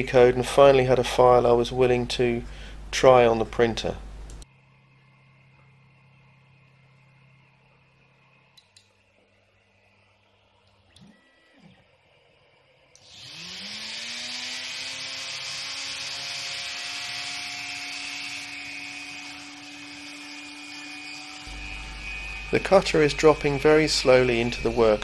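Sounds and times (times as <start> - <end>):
rotary tool whirring: 13.0 - 25.0.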